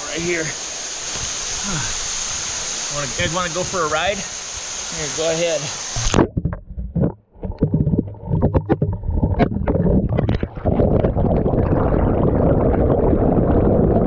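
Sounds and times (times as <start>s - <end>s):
churning water rushing underwater: 0.0s - 14.0s
camera knocks and clicks underwater: 6.0s - 11.5s.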